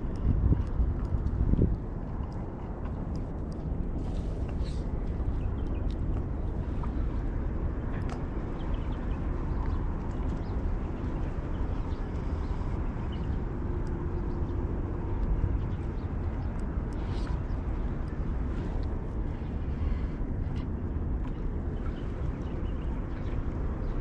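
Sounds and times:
faint clicks: 0:00.0 - 0:07.1, 0:07.8 - 0:10.6
wind buffeting microphone: 0:00.0 - 0:24.0.

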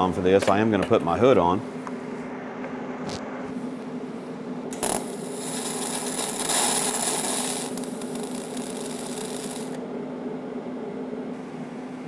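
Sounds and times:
welder humming: 0:03.0 - 0:11.4
welding arc hissing: 0:04.7 - 0:09.8.

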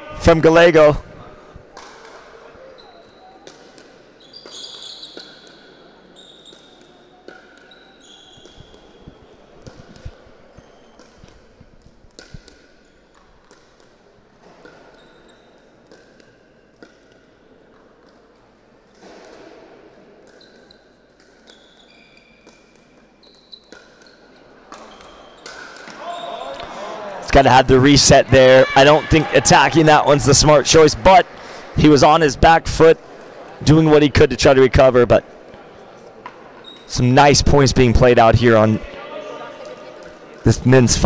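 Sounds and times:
murmur of spectators: 0:00.0 - 0:12.0, 0:23.9 - 0:41.0
shoes squeaking on court: 0:02.5 - 0:18.4, 0:20.2 - 0:26.6, 0:35.6 - 0:37.0.

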